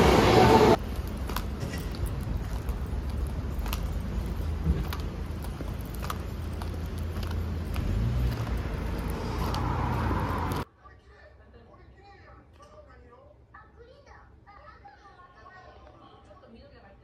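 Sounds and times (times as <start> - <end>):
low street rumble: 0.0 - 10.7.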